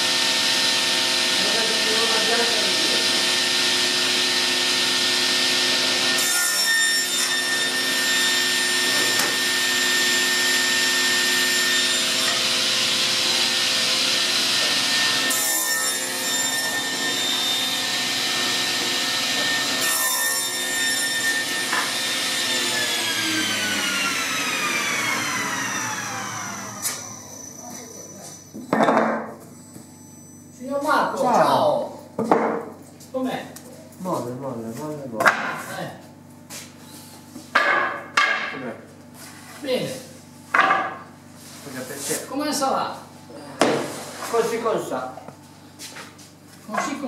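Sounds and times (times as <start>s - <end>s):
panel saw whine: 0.0s - 28.6s
saw rasping through wood: 0.1s - 27.2s.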